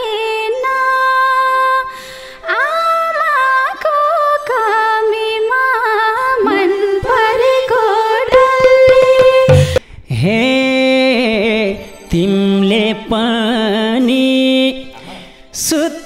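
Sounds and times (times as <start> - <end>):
folk instrumental accompaniment: 8.3 - 9.8
percussive strokes: 8.3 - 9.8.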